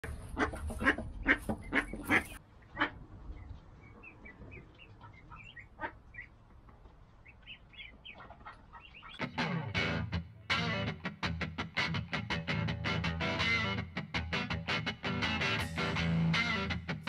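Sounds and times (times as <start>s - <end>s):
ducklings peeping: 0.1s - 9.9s.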